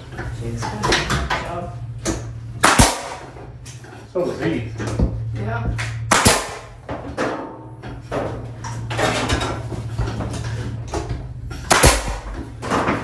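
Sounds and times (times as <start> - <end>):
steady low hum: 0.0 - 13.0
nail gun firing: 2.6 - 3.3, 6.1 - 6.8, 11.7 - 12.9.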